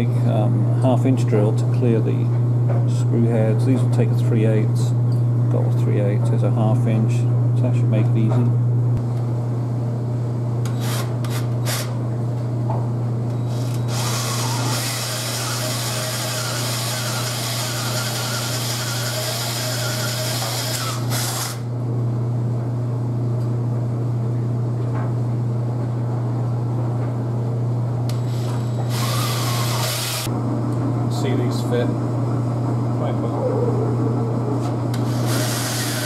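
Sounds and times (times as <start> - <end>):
cordless drill boring into wood: 10.7 - 11.9, 13.5 - 21.6, 28.2 - 30.3, 35.0 - 36.0.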